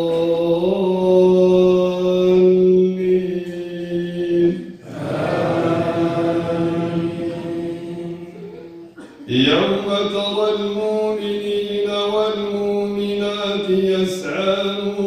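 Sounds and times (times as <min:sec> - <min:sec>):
man chanting recitation: 0:00.0 - 0:05.0, 0:09.3 - 0:15.0.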